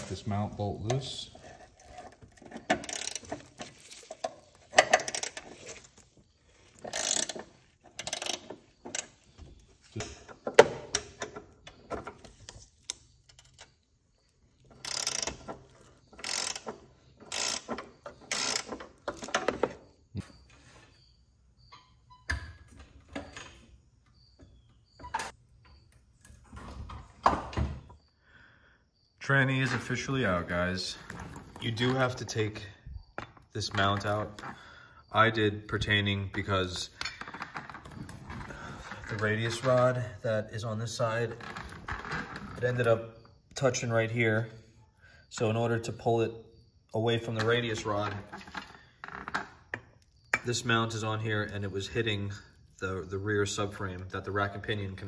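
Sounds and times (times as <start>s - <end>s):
socket ratchet clicking: 14.8s - 15.4s, 16.2s - 19.3s.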